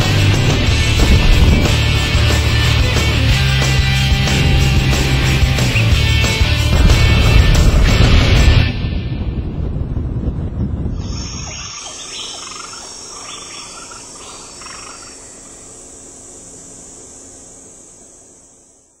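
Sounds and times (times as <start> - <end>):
low rumble: 0.0 - 15.7
high-pitched insect drone: 11.0 - 19.0.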